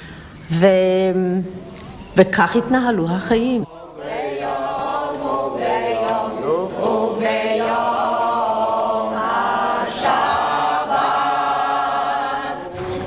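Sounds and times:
choir singing: 3.2s - 13.0s.

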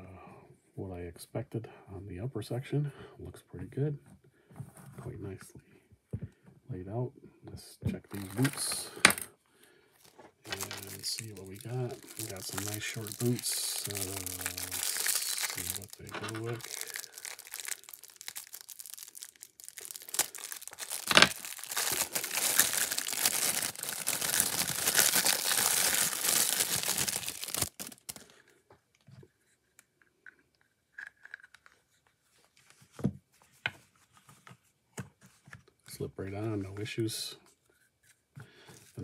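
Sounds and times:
plastic bag crinkling and tearing: 8.1s - 9.0s, 10.0s - 28.5s.

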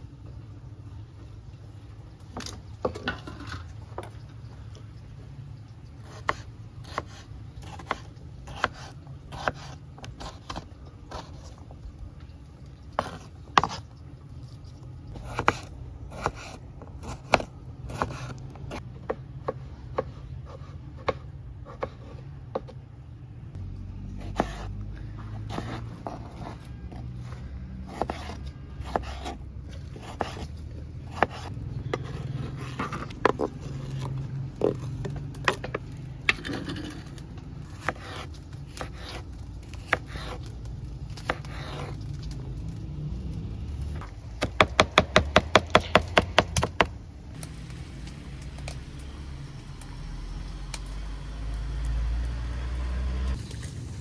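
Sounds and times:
knife cutting on wooden board: 6.0s - 11.6s, 15.2s - 18.8s, 19.4s - 22.7s, 24.2s - 24.7s, 27.9s - 34.8s, 37.7s - 40.5s, 41.2s - 42.0s.

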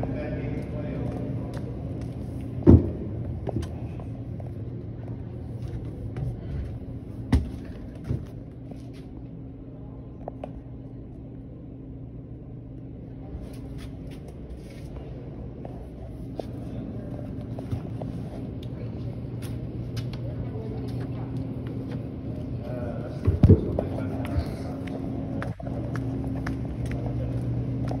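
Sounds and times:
steady low hum: 0.0s - 28.0s
footsteps in trolley car: 23.7s - 28.0s.

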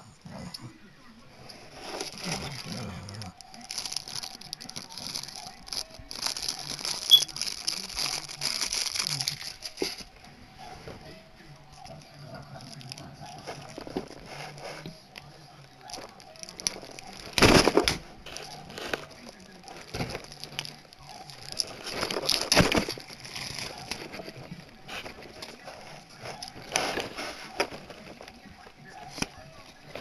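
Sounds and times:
cards rustling and shuffling: 15.8s - 30.0s.

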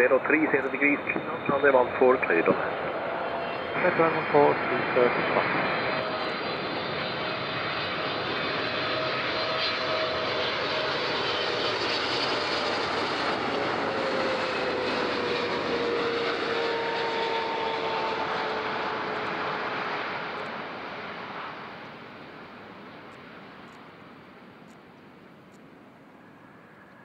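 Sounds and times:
jet engines passing by: 0.0s - 27.0s
faint whining tones: 21.5s - 27.0s.

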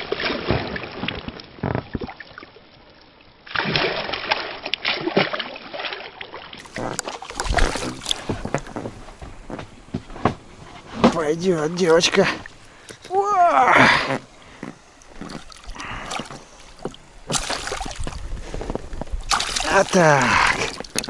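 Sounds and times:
water splashing and sloshing: 0.0s - 21.0s
knocks and rustles of handling: 6.7s - 11.4s.

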